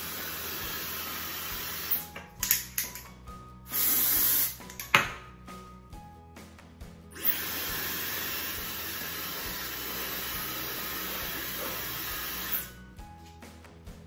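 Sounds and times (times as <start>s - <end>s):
hair dryer running: 0.0s - 2.1s, 7.2s - 12.8s
faint background music: 0.0s - 14.0s
aerosol spray hiss: 3.7s - 4.6s, 7.2s - 12.7s.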